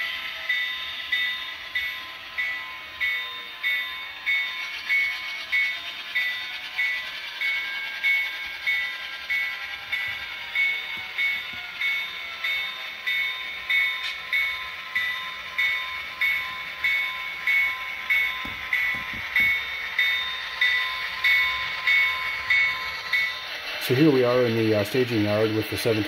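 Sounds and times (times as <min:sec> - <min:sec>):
bell-like ringing strike: 0:10.0 - 0:23.4.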